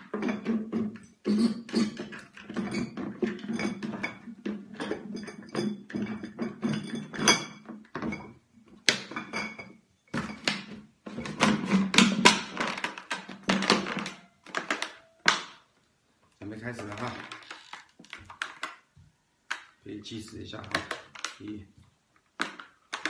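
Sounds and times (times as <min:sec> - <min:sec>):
glass bottles clinking: 0:00.0 - 0:15.5.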